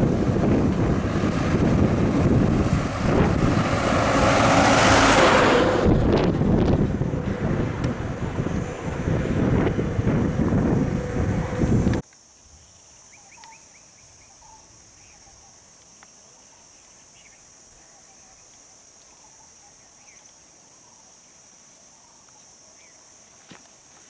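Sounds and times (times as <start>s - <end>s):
insects droning: 0.0s - 24.0s
bird chirps: 12.6s - 15.5s.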